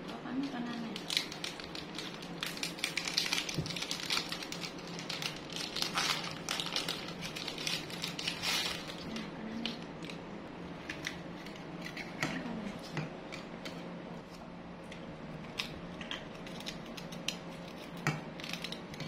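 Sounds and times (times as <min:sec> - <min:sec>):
sachet packet crinkling: 0:00.8 - 0:10.2.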